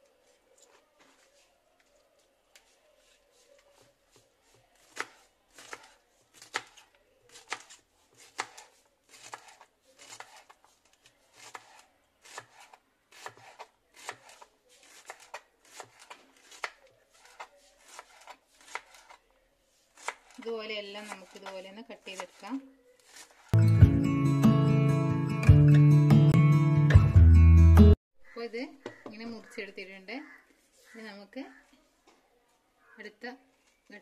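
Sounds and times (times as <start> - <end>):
knife chopping on wooden board: 4.8 - 10.6, 11.4 - 19.2, 20.0 - 20.4, 21.0 - 22.5.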